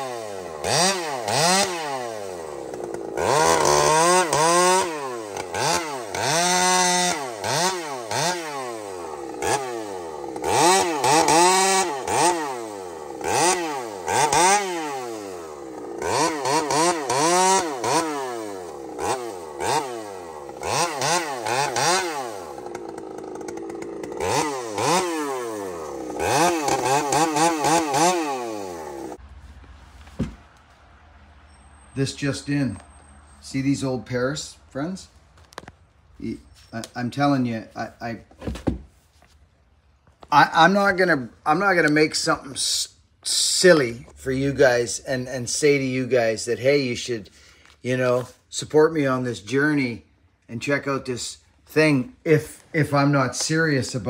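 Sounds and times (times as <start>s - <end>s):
chainsaw revving cutting logs: 0.0s - 29.2s, 40.3s - 54.0s.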